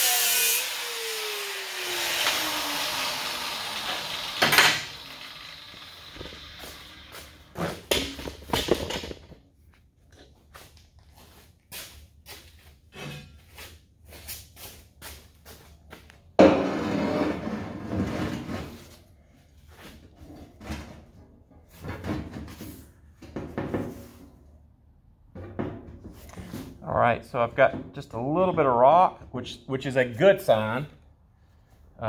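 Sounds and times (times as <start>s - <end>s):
angle grinder grinding steel: 0.0s - 7.9s.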